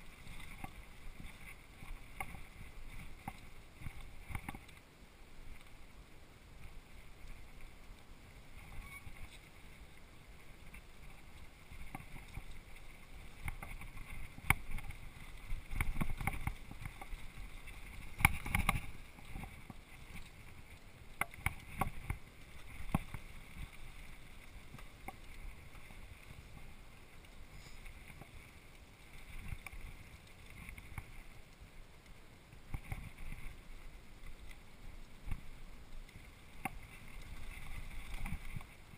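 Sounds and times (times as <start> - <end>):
bike tyres rumbling on dirt: 0.0 - 38.9
bike knocking and rattling: 10.6 - 23.8.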